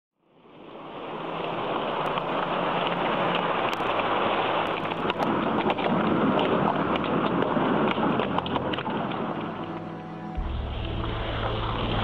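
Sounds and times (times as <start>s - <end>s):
hailstones striking clicks: 1.9s - 9.9s.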